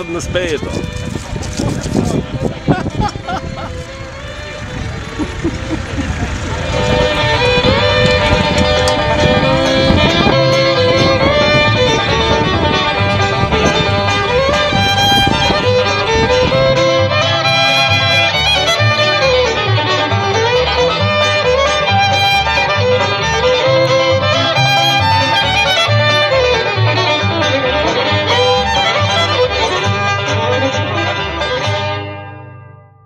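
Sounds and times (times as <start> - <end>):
rhythmic bass line: 0.0 - 32.2
lively fiddle tune: 0.0 - 32.5.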